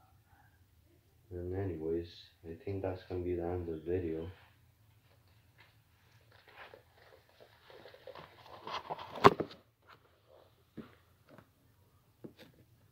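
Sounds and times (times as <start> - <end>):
camera handling rustling: 6.3 - 10.0.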